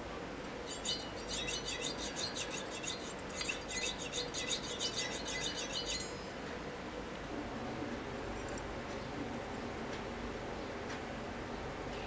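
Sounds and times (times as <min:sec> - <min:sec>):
hand saw cutting metal: 0:00.7 - 0:06.3.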